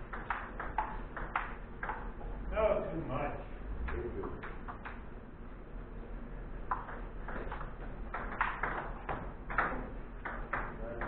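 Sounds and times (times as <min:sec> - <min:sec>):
table tennis balls clicking: 0:00.0 - 0:02.4, 0:03.8 - 0:05.1, 0:06.6 - 0:11.0.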